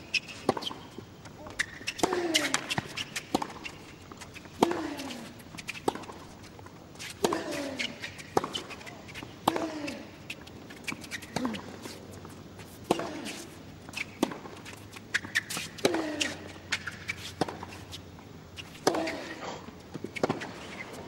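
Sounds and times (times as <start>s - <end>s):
tennis racket hitting ball: 1.5s - 3.8s, 4.6s - 6.3s, 7.0s - 10.0s, 12.8s - 17.9s.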